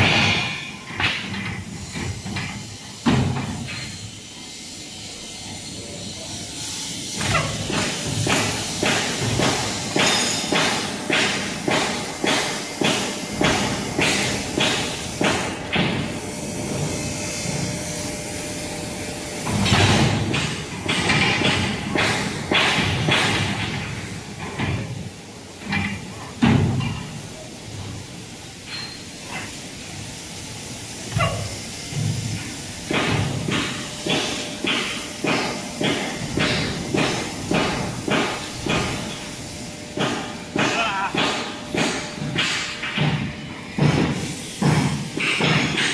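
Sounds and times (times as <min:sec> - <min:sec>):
hissing and clatter: 0:00.0 - 0:45.9
brick machine knocking: 0:32.9 - 0:39.2.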